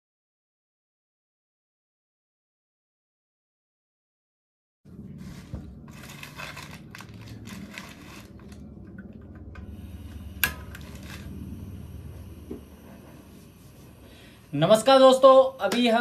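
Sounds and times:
steady low hum: 4.9 - 16.0
camping stove and pan rustling: 5.1 - 8.8, 10.1 - 11.6.

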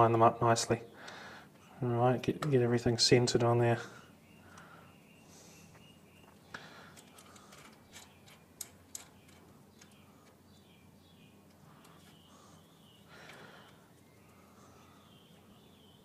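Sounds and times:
small metal parts clicking: 6.9 - 10.4.

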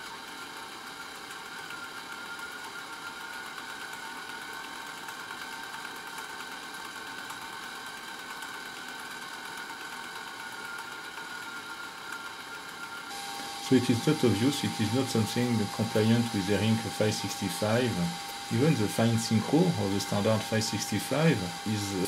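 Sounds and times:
servo motor whining: 11.5 - 22.0.

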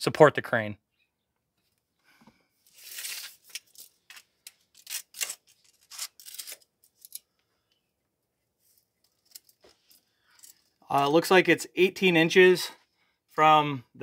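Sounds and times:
tape measure scraping and clicking: 2.7 - 7.2.

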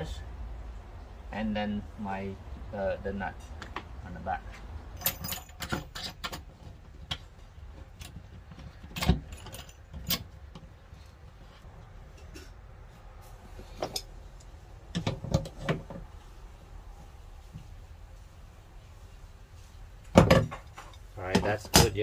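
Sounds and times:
metal fittings clinking: 5.0 - 6.4.

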